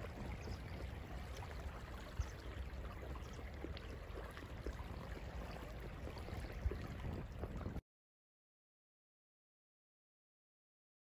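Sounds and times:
waves lapping on sand: 0:00.0 - 0:07.7
wind on microphone: 0:00.0 - 0:07.8.

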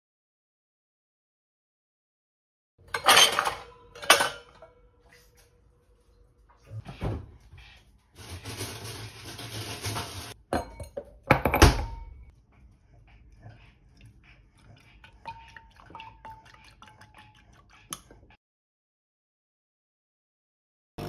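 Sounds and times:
glassware clinking: 0:02.9 - 0:04.8, 0:10.5 - 0:12.3, 0:15.2 - 0:17.1
spoon stirring in glass: 0:14.6 - 0:18.2.

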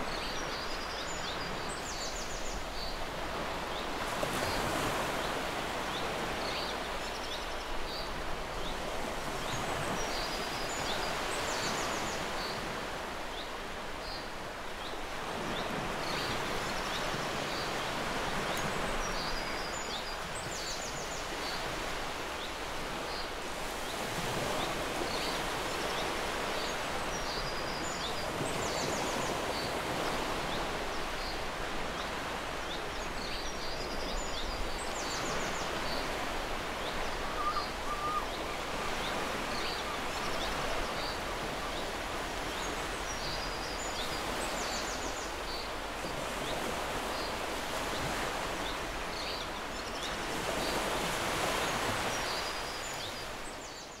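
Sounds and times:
surf on a beach: 0:00.0 - 0:54.0
wind: 0:00.0 - 0:54.0.

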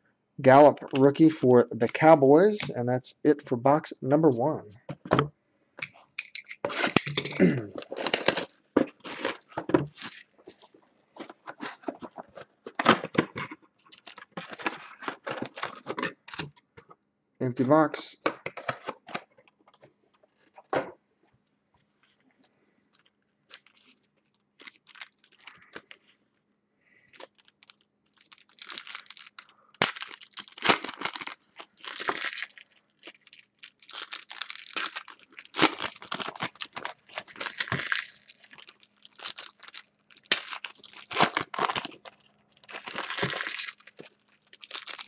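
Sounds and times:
wrappers crinkling and tearing: 0:06.7 - 0:16.5, 0:23.0 - 0:26.1, 0:27.0 - 0:45.0.

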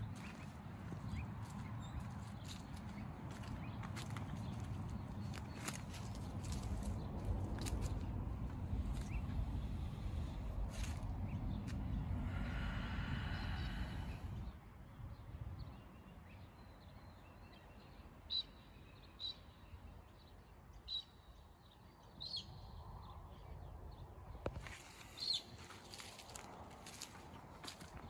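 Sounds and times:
birds chirping: 0:00.0 - 0:14.6, 0:24.4 - 0:28.0
low outdoor rumble: 0:00.0 - 0:15.8
footsteps crunching on leaf litter: 0:00.1 - 0:09.2, 0:10.7 - 0:11.1, 0:24.6 - 0:28.0.

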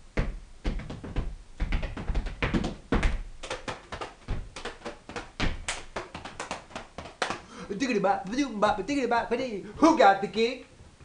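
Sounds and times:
feet stomping on wooden floor: 0:00.2 - 0:07.5.

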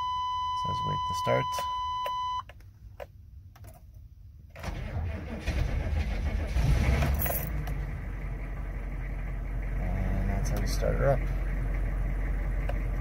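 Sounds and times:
diesel engine starting and idling: 0:04.5 - 0:13.0.

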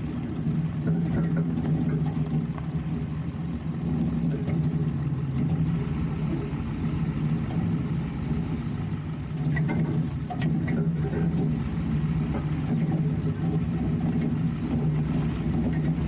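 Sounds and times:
vehicle engine at low revs: 0:00.0 - 0:16.0.

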